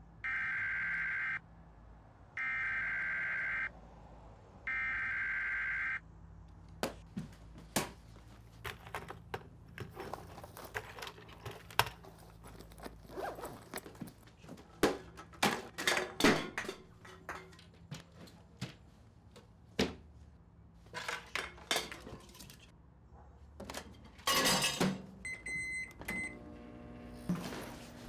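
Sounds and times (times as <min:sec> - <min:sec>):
rustles and clunks of handling: 0:06.8 - 0:18.8
microwave keypad beeps: 0:25.2 - 0:26.4
microwave humming: 0:25.3 - 0:28.0.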